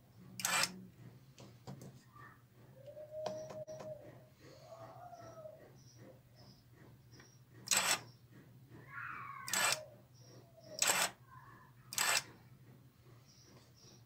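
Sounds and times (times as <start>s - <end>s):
small gear motor whirring: 0.4s - 0.8s, 7.7s - 8.1s, 9.0s - 9.9s, 10.7s - 11.2s, 11.9s - 12.3s.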